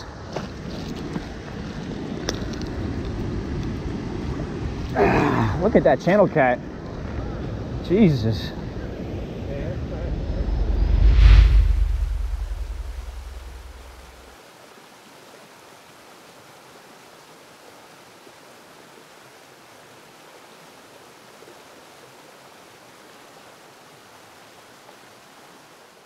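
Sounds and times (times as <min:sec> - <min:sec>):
deep low boom: 0:10.0 - 0:14.2
flowing river water: 0:13.0 - 0:26.0.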